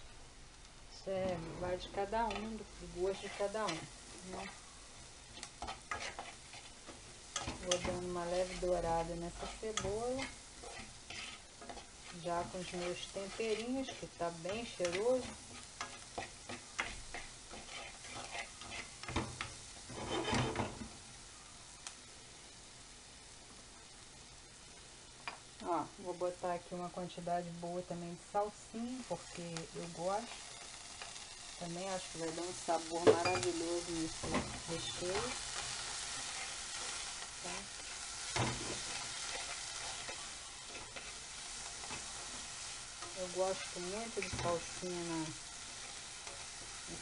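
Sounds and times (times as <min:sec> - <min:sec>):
onion sizzling in a frying pan: 0:00.0 - 0:47.0
spatula scraping and tapping a pan: 0:01.2 - 0:04.6, 0:05.3 - 0:21.0, 0:33.0 - 0:37.2, 0:37.8 - 0:45.0.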